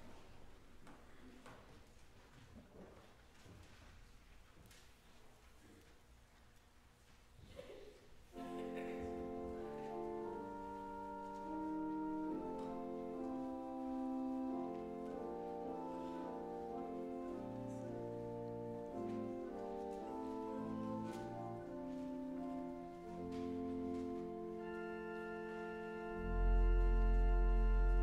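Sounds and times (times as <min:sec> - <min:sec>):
church organ chords: 0:08.3 - 0:28.0
organ bass line: 0:24.3 - 0:28.0.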